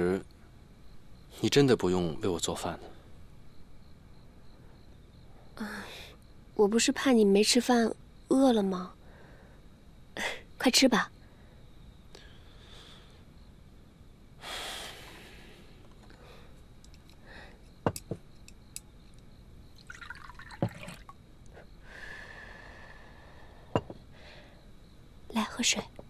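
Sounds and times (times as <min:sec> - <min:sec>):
soft breath: 0:09.0 - 0:10.4, 0:11.2 - 0:13.3, 0:14.4 - 0:17.8, 0:21.6 - 0:24.8
tea pouring into cup: 0:19.8 - 0:21.1.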